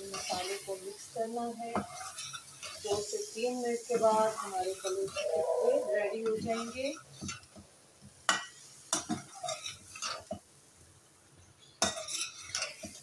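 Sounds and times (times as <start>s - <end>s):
metal spatula scraping a metal pan: 0.0s - 0.8s, 1.4s - 7.4s, 8.3s - 10.4s, 11.8s - 13.0s.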